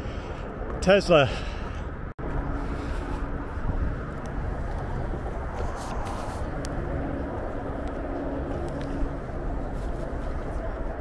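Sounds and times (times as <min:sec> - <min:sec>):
wind rumble on microphone: 0:01.8 - 0:11.0
vehicle engine running: 0:02.2 - 0:11.0.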